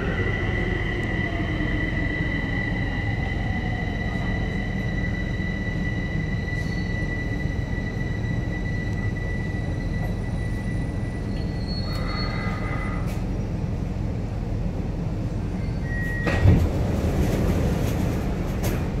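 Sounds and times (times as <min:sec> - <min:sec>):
metro train rumbling: 0:00.0 - 0:19.0
train thump: 0:16.2 - 0:19.0.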